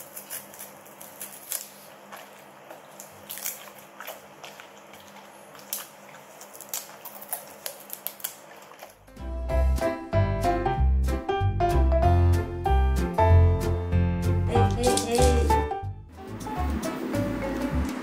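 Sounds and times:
dogs crunching celery: 0.0s - 9.1s, 14.5s - 15.6s.

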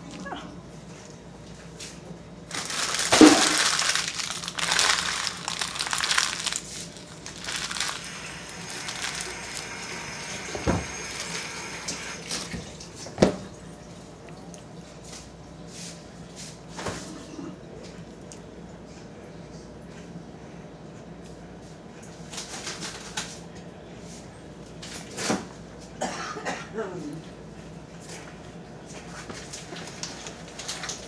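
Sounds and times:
water running from tap: 8.0s - 13.0s.

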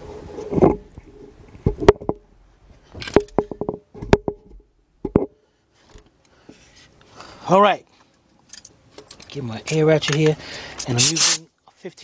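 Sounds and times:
metal tools clinking together: 8.5s - 12.0s.

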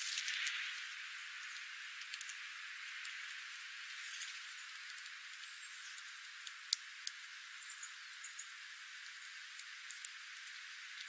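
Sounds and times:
birds pecking at seed and gravel: 0.0s - 11.0s
steady high hiss: 0.0s - 11.0s.

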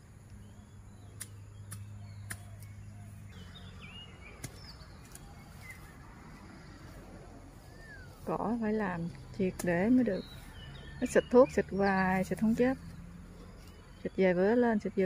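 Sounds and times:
bird chirps: 0.3s - 7.0s, 7.6s - 15.0s
sharp clicks: 1.2s - 2.8s.

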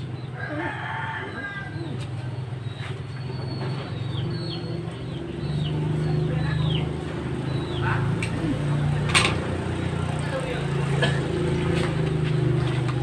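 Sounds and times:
bird chirping: 2.3s - 8.7s.

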